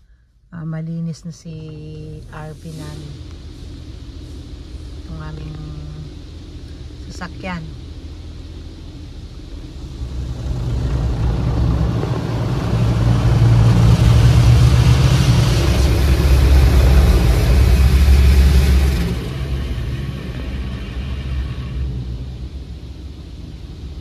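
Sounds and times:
car wash machine rumbling: 0.0 - 24.0
rushing water spray: 2.6 - 24.0.

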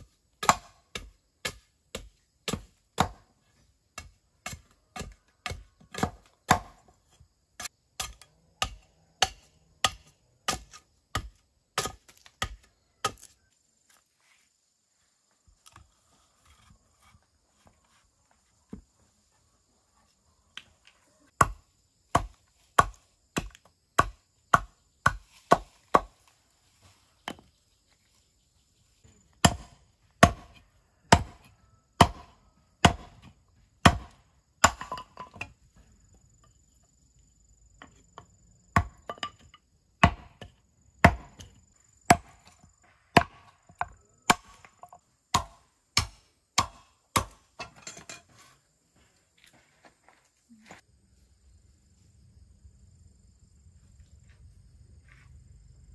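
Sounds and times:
machete chopping bamboo: 0.4 - 3.3, 4.0 - 6.9, 7.6 - 13.4, 21.4 - 26.3, 29.4 - 35.5, 38.8 - 47.8.

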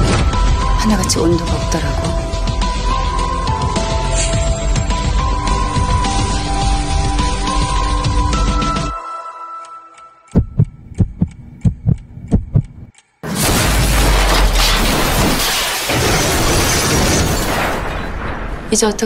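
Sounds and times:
heartbeat thumping: 10.3 - 12.9
sustained rumbling noise: 10.4 - 15.2
loud car crash: 13.2 - 18.7.

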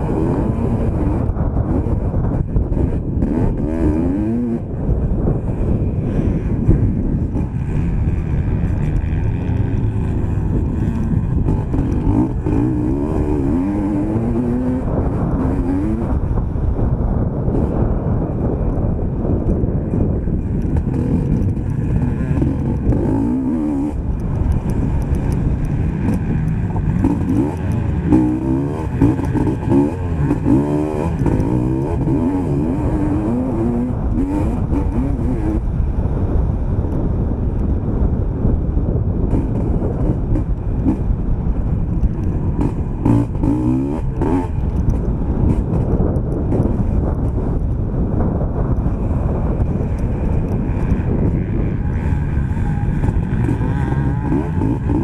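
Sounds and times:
motocross bike engine revving: 0.0 - 16.5, 20.0 - 35.7, 42.1 - 47.6, 48.8 - 55.0.

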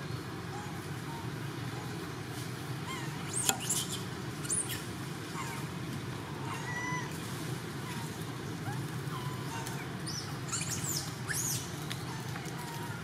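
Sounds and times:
low background rumble: 0.0 - 13.0
animal squeaks and chirps: 2.9 - 4.9, 9.2 - 11.7.

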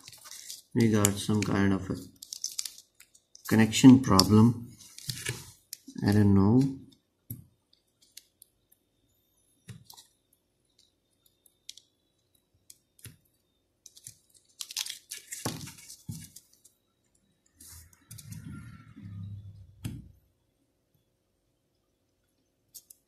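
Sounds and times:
wires clicking into breadboard: 22.7 - 23.0.

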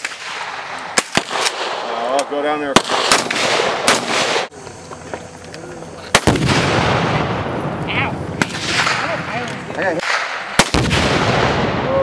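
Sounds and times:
rifle shots: 0.0 - 4.5, 6.1 - 7.6, 8.4 - 11.8
explosion with low rumble: 6.2 - 9.4, 10.0 - 12.0.

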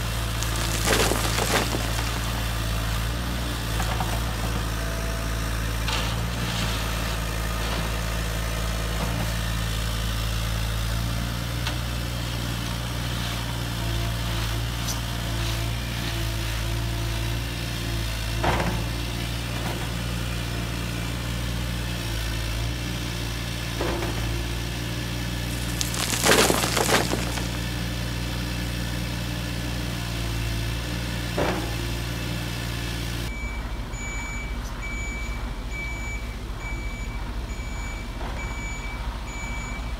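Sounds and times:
stones clattering: 0.3 - 2.7, 25.4 - 27.8.

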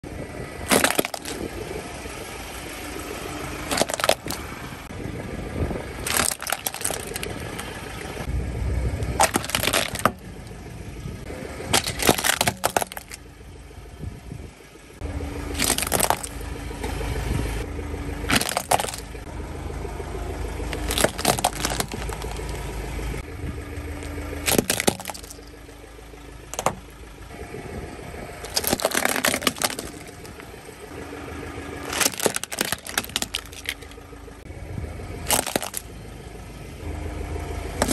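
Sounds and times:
low rumble of moving car: 0.0 - 37.9
plastic toy cracking under tyre: 0.7 - 1.5, 3.7 - 4.4, 6.0 - 7.4, 9.1 - 10.2, 11.7 - 13.2, 15.6 - 16.4, 18.3 - 19.1, 20.7 - 22.6, 24.4 - 25.4, 28.4 - 30.4, 31.9 - 34.0, 35.2 - 35.9.

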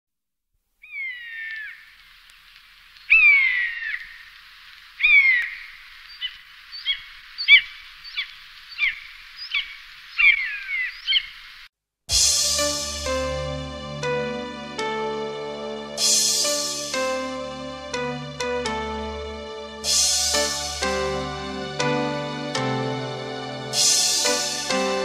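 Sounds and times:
buzzard calling: 0.8 - 1.9, 3.1 - 4.3, 5.0 - 11.5.

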